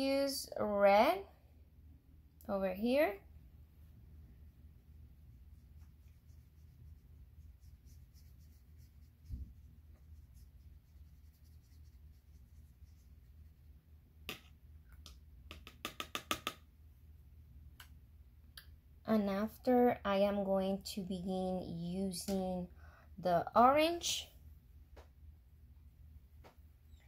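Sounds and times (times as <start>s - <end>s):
low room hum: 0.0s - 27.0s
paintbrush scratching on paper: 5.4s - 13.8s.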